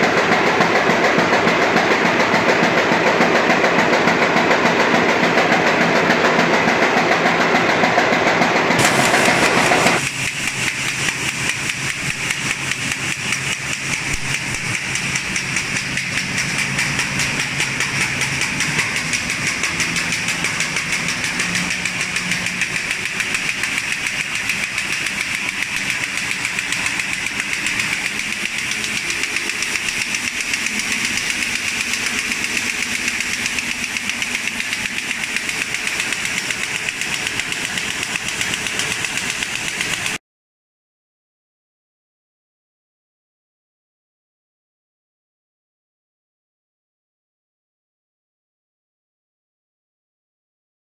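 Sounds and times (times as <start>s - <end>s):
machine rapid clatter: 0.0s - 40.2s.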